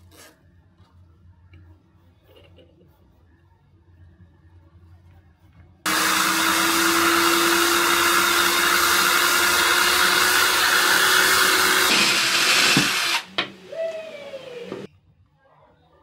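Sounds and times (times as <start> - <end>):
power tool motor whine: 5.9 - 14.9.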